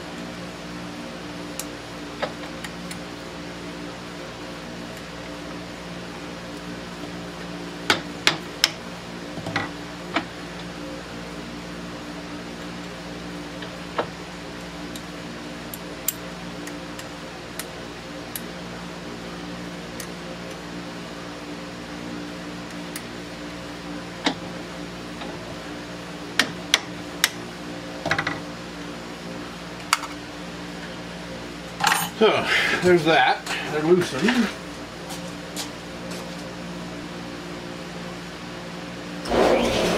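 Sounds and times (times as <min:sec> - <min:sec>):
steady low hum: 0:34.6 - 0:39.9.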